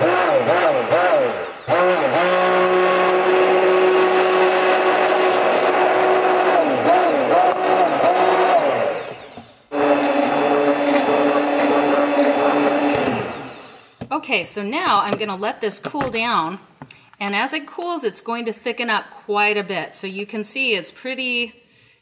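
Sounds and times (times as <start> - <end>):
stick blender motor running: 0.0 - 14.1.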